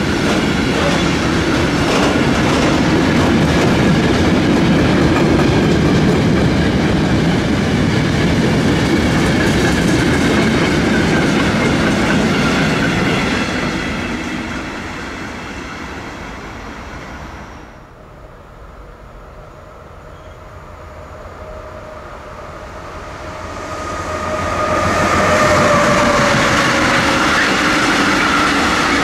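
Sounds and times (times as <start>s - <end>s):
freight train rumbling past: 0.0s - 29.0s
faint high whine from rails: 12.1s - 29.0s.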